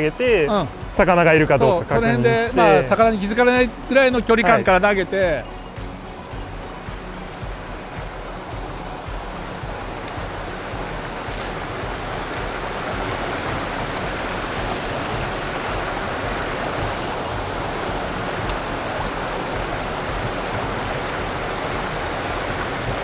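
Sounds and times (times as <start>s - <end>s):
water rushing over rocks: 0.0s - 23.0s.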